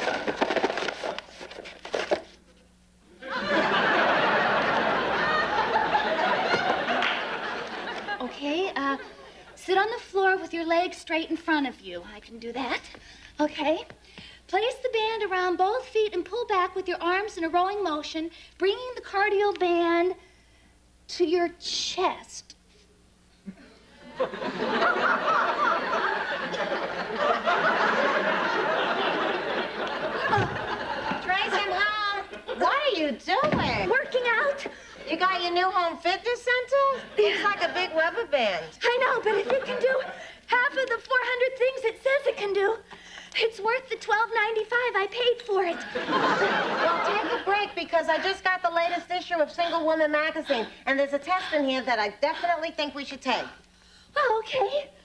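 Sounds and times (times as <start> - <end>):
audience laughing: 3.2 - 9.6, 24.0 - 32.9, 36.8 - 38.3, 39.1 - 40.4, 45.7 - 48.9.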